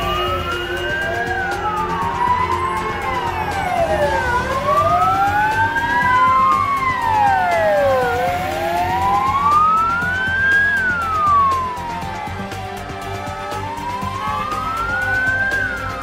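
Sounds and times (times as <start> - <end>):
emergency sirens wailing: 0.0 - 16.0.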